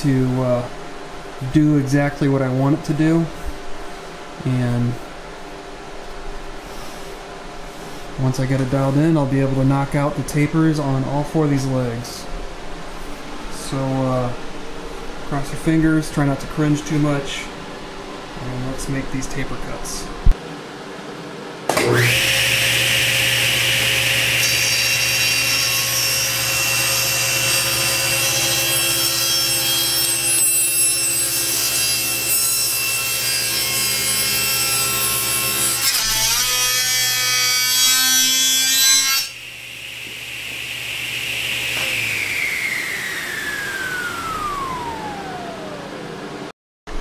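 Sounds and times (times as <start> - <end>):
table saw cutting wood: 21.7 - 45.9
saw blade winding down whine: 21.8 - 32.1, 39.3 - 46.4.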